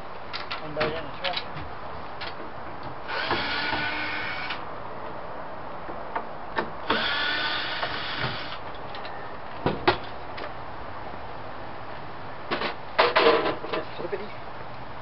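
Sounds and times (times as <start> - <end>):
cordless drill whirring: 3.1 - 4.6, 6.9 - 8.6.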